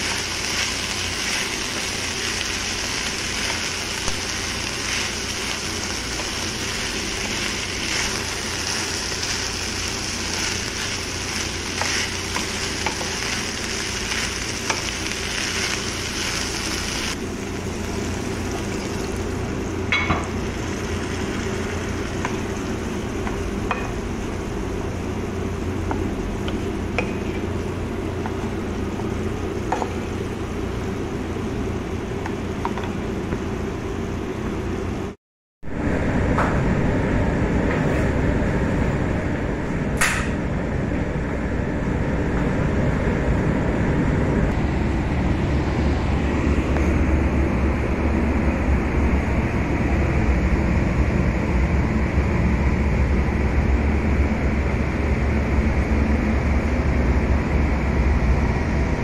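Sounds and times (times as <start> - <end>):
vegetables frying in a pan: 0.0 - 30.5
steady machine hum: 0.0 - 59.0.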